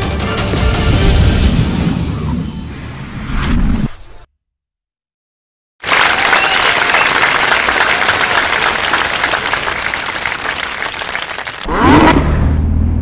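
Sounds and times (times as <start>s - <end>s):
crowd applause: 5.8s - 11.7s.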